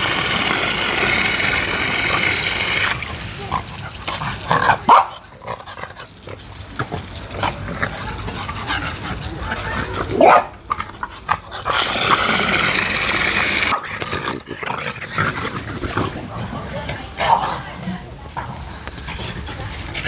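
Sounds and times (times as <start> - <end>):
hose spraying into water: 0.0 - 13.8.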